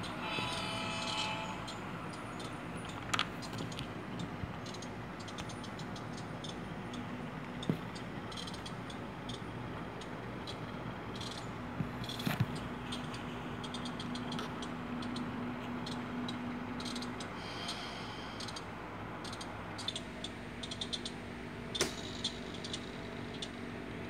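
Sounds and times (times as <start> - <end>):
wheels clicking on rails: 0.0 - 17.8, 18.4 - 24.0.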